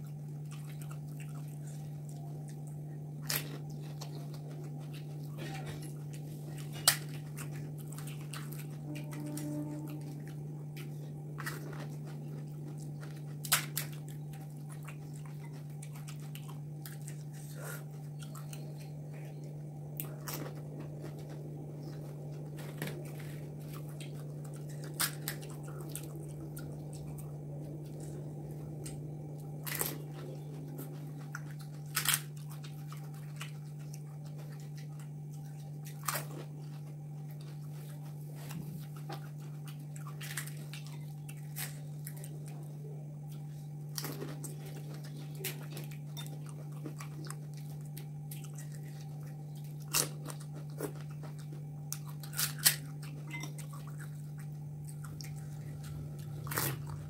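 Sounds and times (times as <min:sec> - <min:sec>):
chewing: 0:00.0 - 0:57.0
steady low hum: 0:00.0 - 0:57.0
crisp shells crunching: 0:20.0 - 0:34.8, 0:43.9 - 0:57.0.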